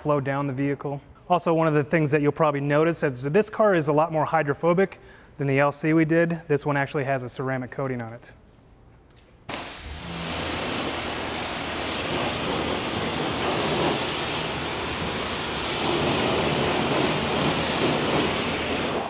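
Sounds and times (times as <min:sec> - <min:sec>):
pressure washer water jet hissing: 0:09.5 - 0:19.0.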